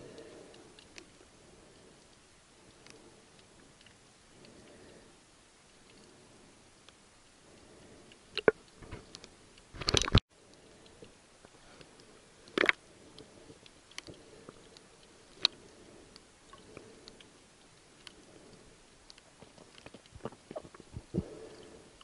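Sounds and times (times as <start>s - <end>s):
underwater clicks and crackles: 0.1s - 6.2s, 6.8s - 22.0s.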